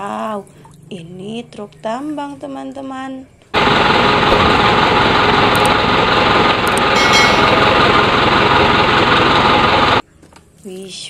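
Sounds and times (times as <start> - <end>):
dump truck engine running: 3.6 - 10.0.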